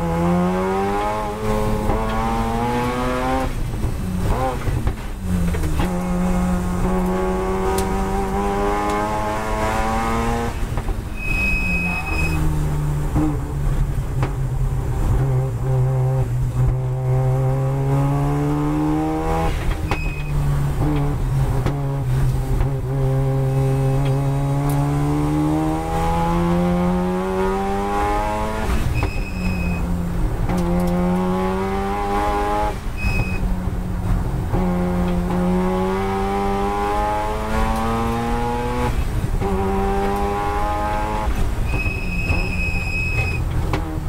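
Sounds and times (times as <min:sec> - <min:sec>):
race car engine revving: 0:00.0 - 0:44.0
high beep: 0:11.1 - 0:12.5, 0:19.9 - 0:20.4, 0:29.0 - 0:29.8, 0:33.0 - 0:33.4, 0:41.7 - 0:43.4.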